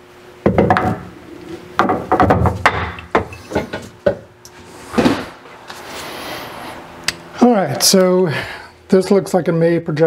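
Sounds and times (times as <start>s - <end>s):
metal vise clunking and scraping: 2.7s - 4.2s.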